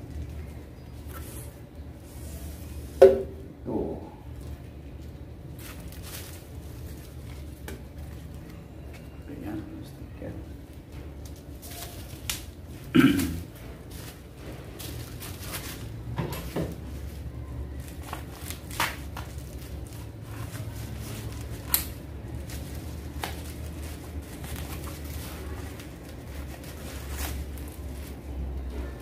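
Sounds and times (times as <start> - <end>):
low steady hum: 0.0 - 29.0
plastic crinkling: 4.4 - 9.2, 10.6 - 29.0
scissors snipping plastic: 21.4 - 22.0.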